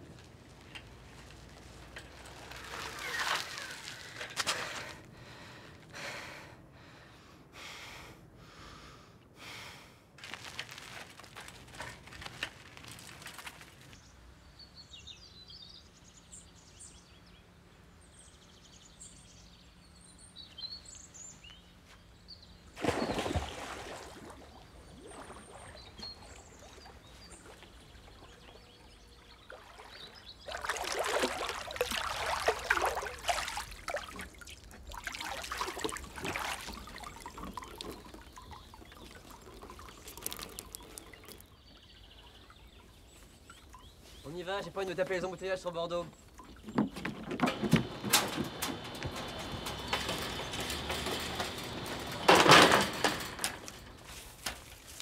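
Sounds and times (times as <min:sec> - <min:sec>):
small birds chirping: 0:13.5 - 0:52.3
water splashing in pool: 0:22.7 - 0:41.6.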